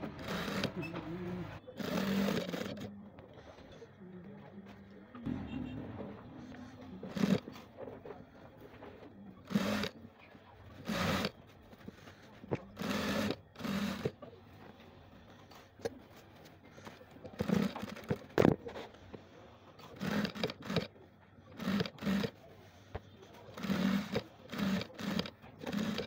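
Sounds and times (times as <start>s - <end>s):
sewing machine stitching: 0.0s - 2.9s, 7.0s - 7.6s, 8.9s - 10.0s, 10.7s - 11.4s, 12.5s - 14.3s, 17.2s - 18.4s, 19.8s - 20.9s, 21.5s - 22.4s, 23.5s - 26.0s.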